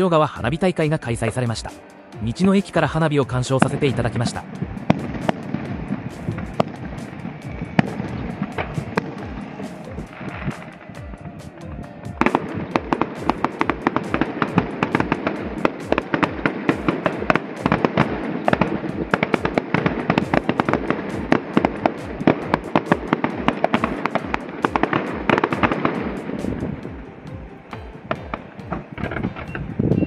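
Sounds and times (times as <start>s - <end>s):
fireworks cracking and popping: 3.6s - 11.6s, 12.2s - 27.0s.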